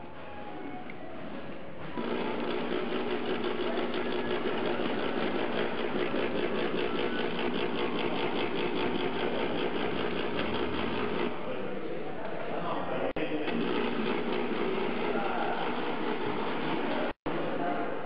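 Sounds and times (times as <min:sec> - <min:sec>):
painting machine motor humming: 0:01.8 - 0:11.4, 0:13.4 - 0:17.2.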